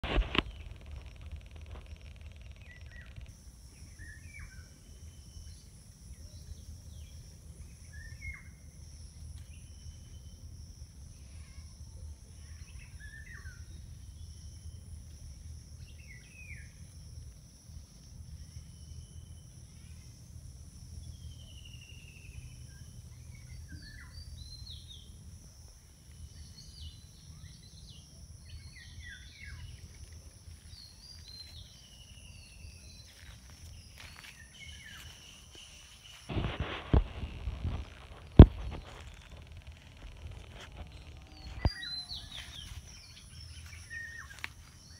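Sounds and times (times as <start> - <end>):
high insect drone: 0.0 - 44.9
low rumble: 36.3 - 43.6.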